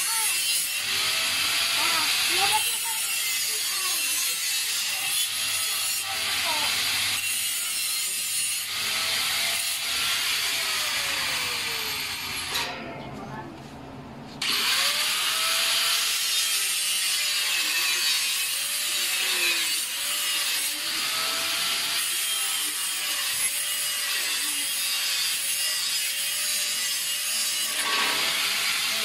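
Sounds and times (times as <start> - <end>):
saw cutting wood: 0.0 - 12.8, 14.4 - 29.0.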